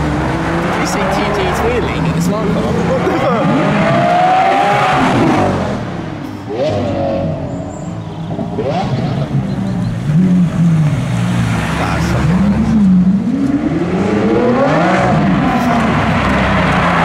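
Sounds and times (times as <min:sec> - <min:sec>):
car engine revving: 0:00.0 - 0:17.0.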